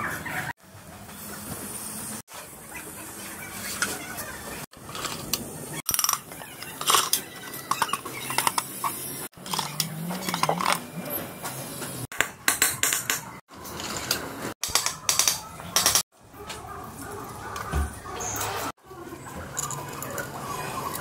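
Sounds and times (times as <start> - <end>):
metal parts clinking on metal: 4.9 - 10.8, 13.8 - 16.0.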